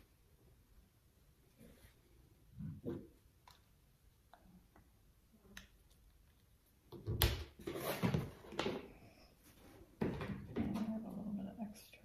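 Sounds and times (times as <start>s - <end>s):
rustling and knocking: 9.6s - 11.1s.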